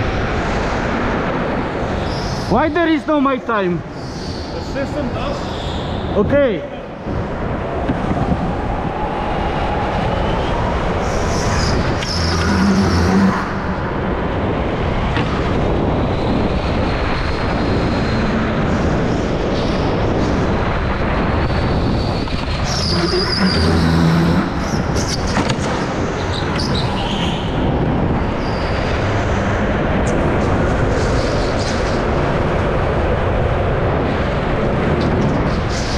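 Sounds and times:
microphone wind noise: 0.0 - 35.9
go-kart engine rumble: 11.2 - 16.3, 21.3 - 32.1.

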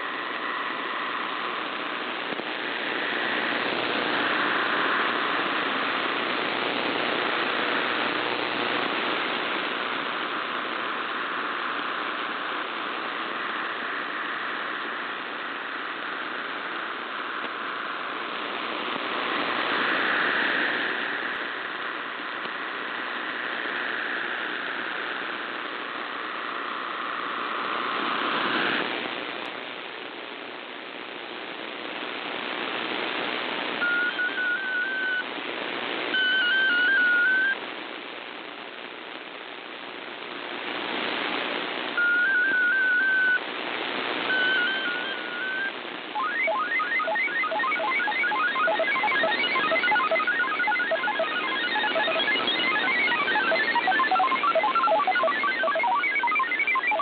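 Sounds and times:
radio static: 0.0 - 57.0
digital signal warble: 33.8 - 35.2, 42.0 - 43.4, 44.3 - 57.0.

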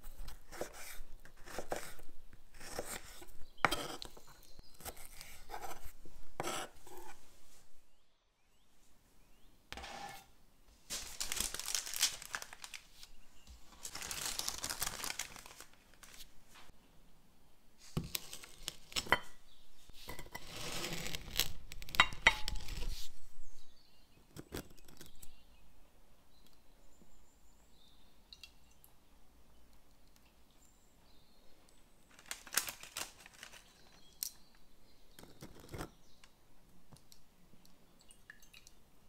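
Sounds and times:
baking paper crinkling: 10.8 - 16.7, 17.8 - 19.3, 20.0 - 23.2, 32.0 - 34.3.

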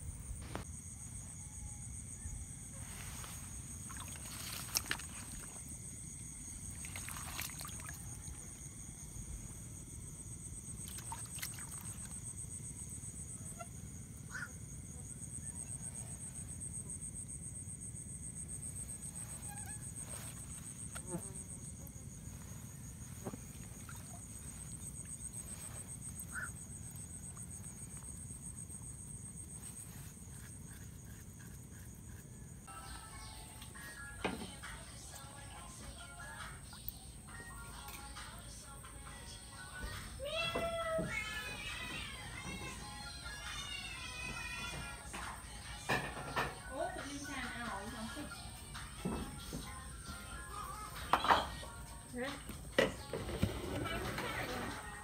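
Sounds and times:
night insects trilling: 0.0 - 55.0.

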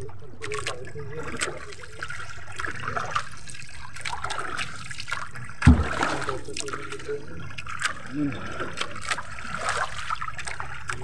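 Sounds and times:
water trickling and dripping: 0.0 - 11.0
dull thump: 5.6 - 6.2.

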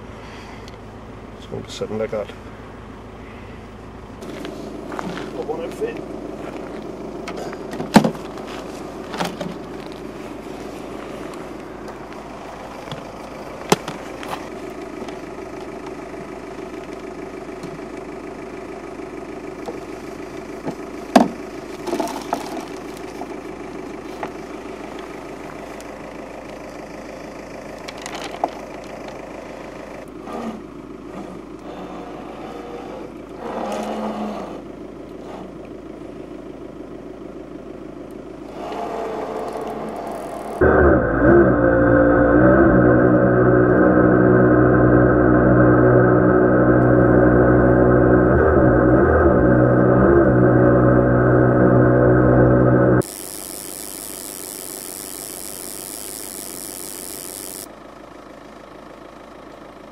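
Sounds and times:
steady mechanical hum: 0.0 - 59.9
short rumble: 38.4 - 53.0.

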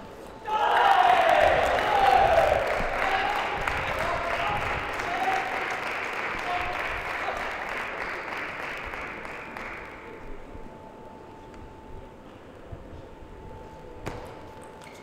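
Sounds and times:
people shouting: 0.4 - 3.6
crowd applauding and cheering: 0.5 - 10.4.

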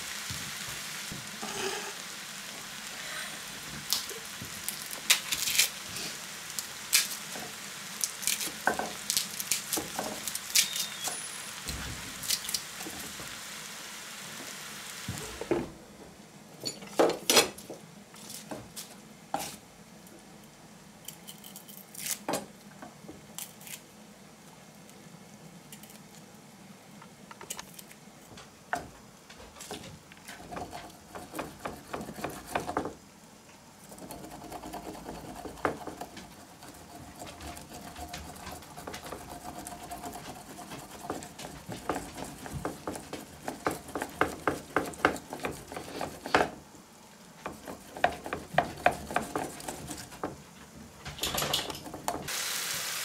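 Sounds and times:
pots and utensils clinking: 51.1 - 52.3.

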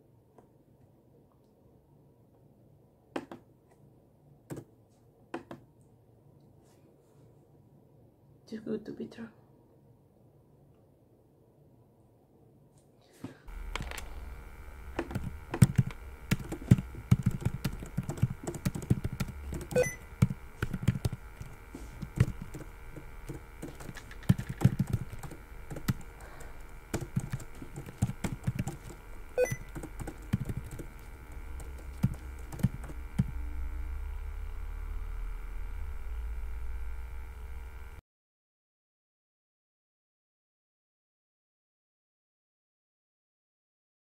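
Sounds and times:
steady low hum: 13.3 - 38.0
keyboard typing: 13.6 - 33.4.

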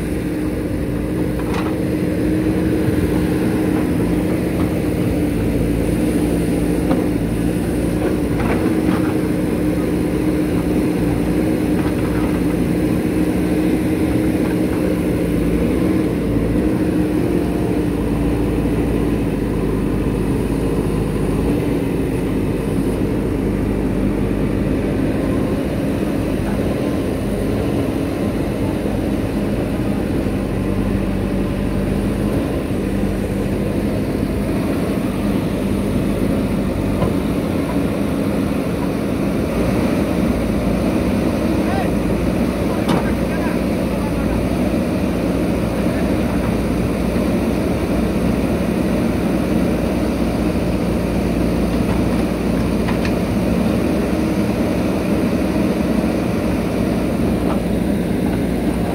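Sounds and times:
diesel engine running: 0.0 - 58.9.

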